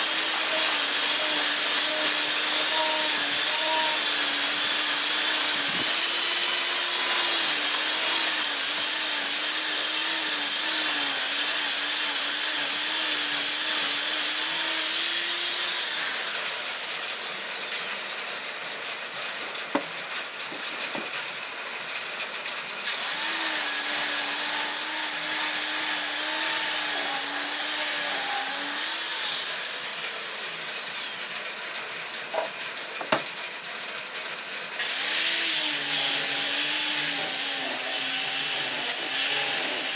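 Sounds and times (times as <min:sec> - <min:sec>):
power tool whining: 0:00.0 - 0:18.0, 0:22.9 - 0:31.5, 0:34.8 - 0:39.9
wood knocks: 0:19.7 - 0:19.9, 0:32.3 - 0:33.3.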